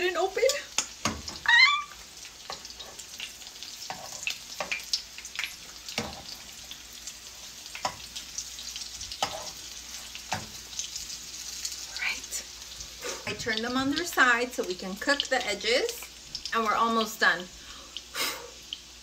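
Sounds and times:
food sizzling in hot oil: 0.0 - 19.0
high rising vocal cry: 1.4 - 2.0.

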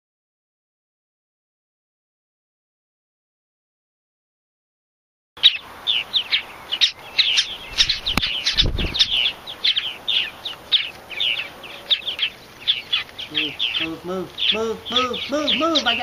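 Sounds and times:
nestlings chirping: 5.4 - 16.0
low thump and rustle: 7.8 - 9.2.

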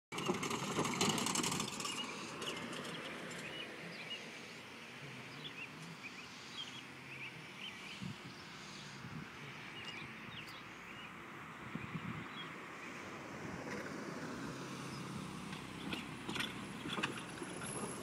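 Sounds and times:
birds chirping: 0.2 - 13.0, 14.8 - 17.6
car driving past: 11.8 - 18.0.

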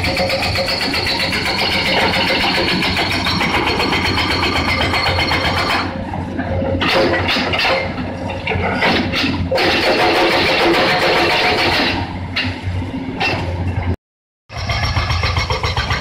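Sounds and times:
hydraulic breaker hammering rock: 0.0 - 5.8, 9.0 - 12.0.

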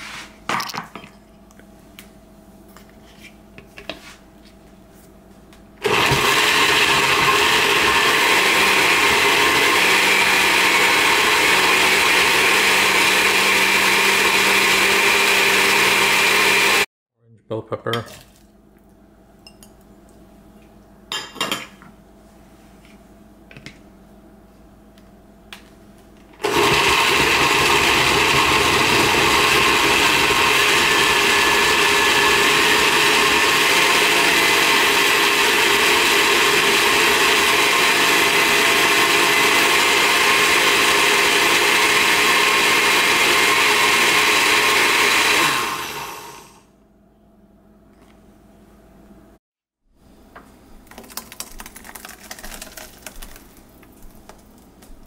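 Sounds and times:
blender running: 5.8 - 16.9, 26.4 - 46.7.

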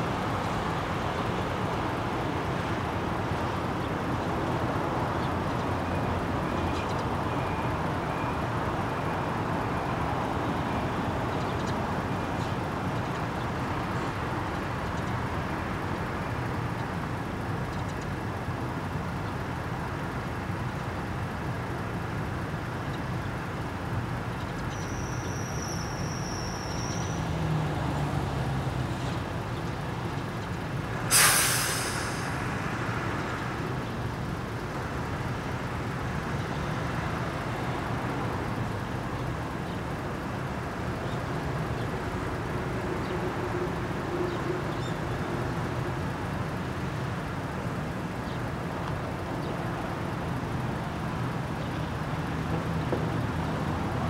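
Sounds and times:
engine hum: 0.0 - 54.0
road traffic: 0.0 - 54.0
high-pitched squeal: 31.1 - 32.9.

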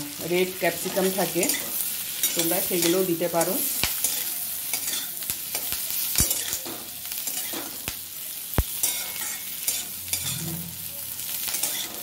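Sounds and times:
vegetables sizzling in butter: 0.0 - 12.0
metal spatula scraping wok: 8.8 - 12.0.

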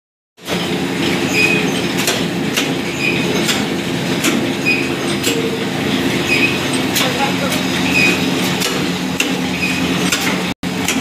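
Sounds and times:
printing machine clatter: 0.4 - 11.0
short high squeak: 1.3 - 1.9, 4.6 - 5.6, 6.2 - 6.8, 7.9 - 8.2, 9.5 - 9.9.

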